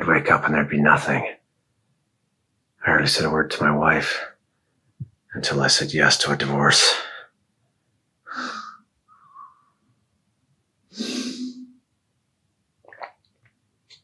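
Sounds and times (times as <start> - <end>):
man breathing heavily: 8.3 - 8.8, 10.9 - 11.6.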